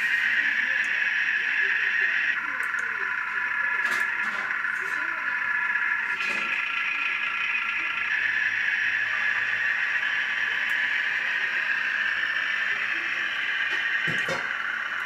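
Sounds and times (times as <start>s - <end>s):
model train whirring hum: 0.0s - 15.0s.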